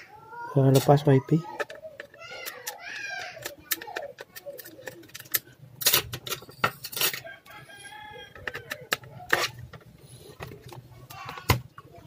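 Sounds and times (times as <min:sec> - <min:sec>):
screwdriver clicking on plastic: 0:01.6 - 0:06.0.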